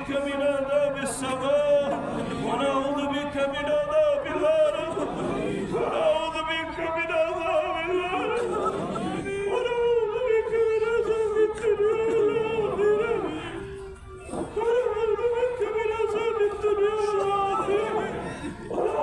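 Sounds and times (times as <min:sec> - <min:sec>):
man chanting: 0:00.0 - 0:19.0.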